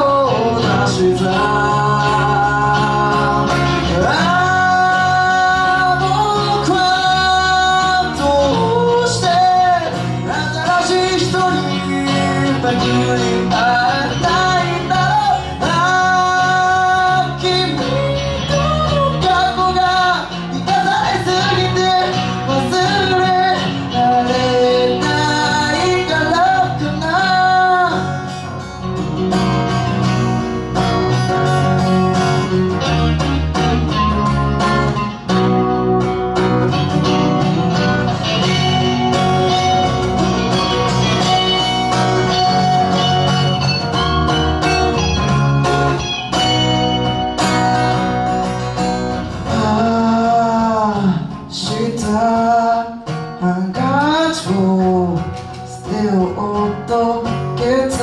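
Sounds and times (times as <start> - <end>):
man singing: 0.0 - 28.9, 49.2 - 58.0
electric bass: 0.0 - 58.0
electric guitar: 0.0 - 58.0
strummed acoustic guitar: 0.0 - 58.0.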